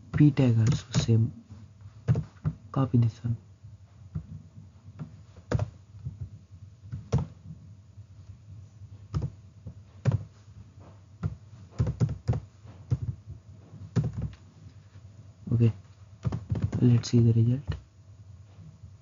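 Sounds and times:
keyboard and mouse clicking: 5.0 - 5.8, 6.9 - 7.3, 9.1 - 9.3, 10.0 - 10.3, 11.2 - 13.2, 13.9 - 14.4, 16.2 - 17.1.

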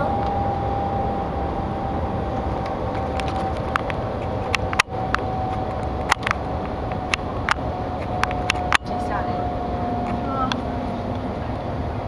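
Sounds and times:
steady high hum: 0.0 - 12.0
sharp clicks: 2.6 - 9.0.

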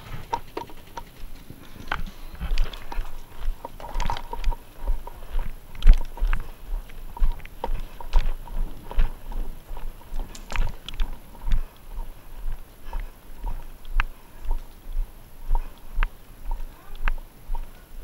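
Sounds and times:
gear knocking and rattling: 0.0 - 11.7
footsteps on turf: 0.0 - 17.8.

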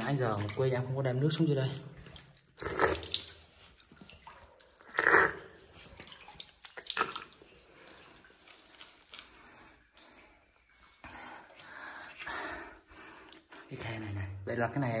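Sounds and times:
water splashing: 0.0 - 1.1, 2.0 - 8.4
water trickling down rock: 2.1 - 5.2, 5.8 - 8.0.

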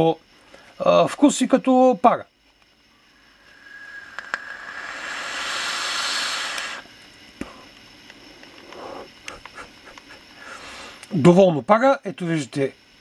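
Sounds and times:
airy hiss of vape draw: 2.9 - 11.1
click: 4.1 - 4.5.

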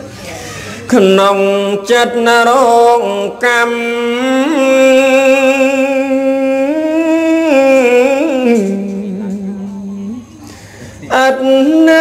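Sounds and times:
person chanting: 0.9 - 10.4, 11.0 - 12.0.

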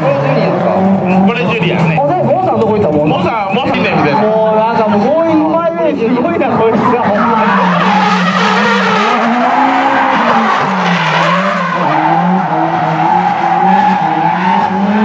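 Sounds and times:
car engine revving: 0.0 - 15.0
tyres squealing and skidding: 6.3 - 15.0.

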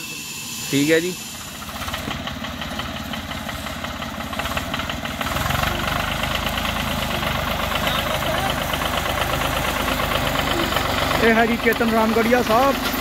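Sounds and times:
vehicle engine running: 0.0 - 13.0.

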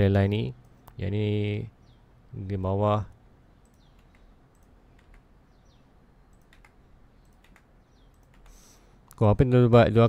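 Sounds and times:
low room hiss: 0.0 - 10.0
keyboard and mouse clicks: 3.6 - 5.3, 6.3 - 8.6.

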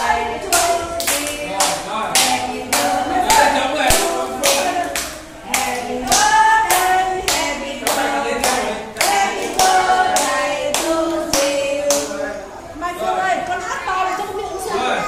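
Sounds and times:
children singing: 0.0 - 12.8
hands clapping: 0.5 - 12.1.

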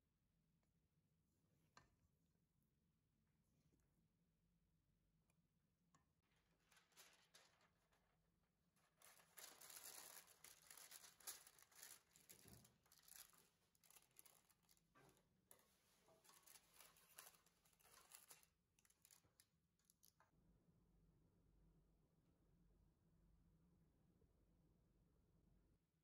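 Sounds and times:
parchment paper rustling and crinkling: 6.2 - 20.0.

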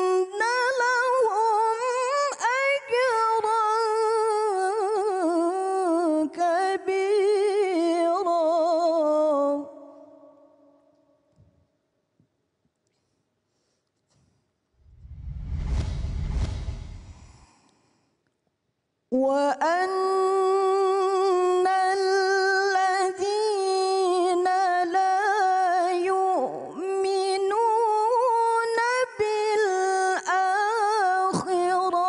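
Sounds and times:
woman reciting melodically: 0.0 - 10.8, 19.1 - 32.0.

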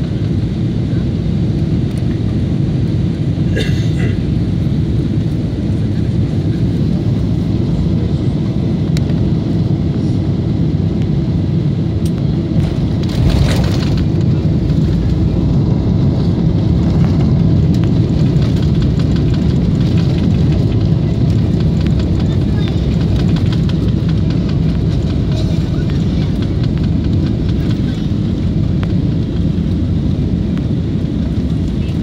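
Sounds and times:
cabin rumble of airflow and engines: 0.0 - 32.0
wheels rolling on runway: 16.0 - 32.0.

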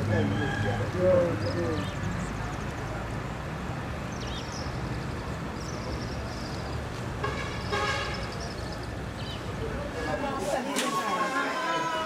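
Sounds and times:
low traffic rumble: 0.0 - 12.0
vehicle horn tooting: 7.2 - 8.3.

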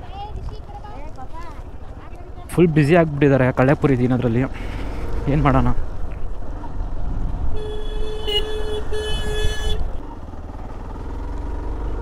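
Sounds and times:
motorcycle rumble: 0.0 - 12.0
vehicle horn honking: 7.5 - 10.0.

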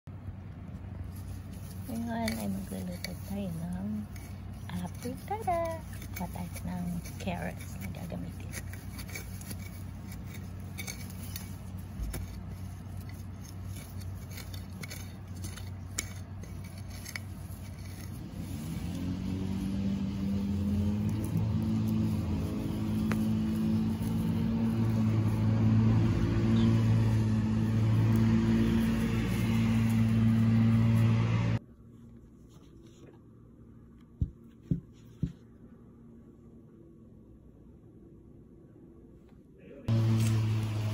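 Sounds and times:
engine humming: 0.0 - 31.7, 39.6 - 40.9
carrot tops pulled from soil: 0.6 - 31.6.

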